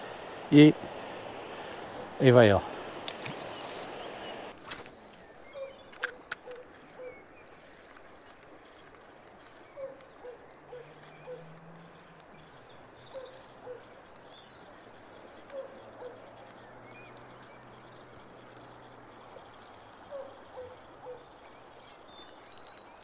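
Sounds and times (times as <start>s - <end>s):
faint high bird chirps: 5.2s - 23.0s
distant animal calling: 5.3s - 21.6s.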